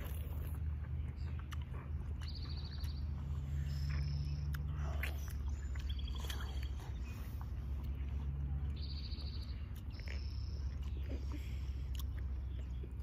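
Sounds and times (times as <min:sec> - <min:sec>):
child chewing watermelon: 0:00.0 - 0:13.0
steady low rumble: 0:00.0 - 0:13.0
high chirping trills: 0:01.1 - 0:04.7, 0:05.3 - 0:11.0.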